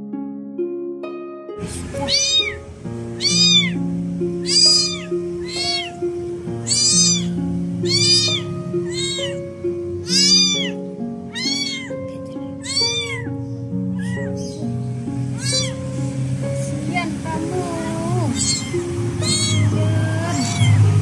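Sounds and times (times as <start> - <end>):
soft background music: 0.0 - 21.0
kitten meowing in distress: 1.9 - 3.8, 4.4 - 6.0, 6.6 - 9.4, 10.0 - 12.0, 12.6 - 14.5, 15.3 - 15.8, 18.2 - 20.9.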